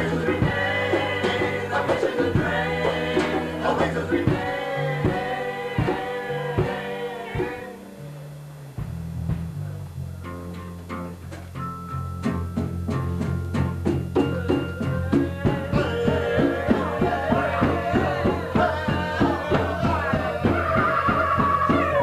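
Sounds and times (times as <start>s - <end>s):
drum kit beat: 0.0s - 7.9s, 8.6s - 22.0s
bass guitar: 0.0s - 22.0s
saxophones: 11.2s - 22.0s.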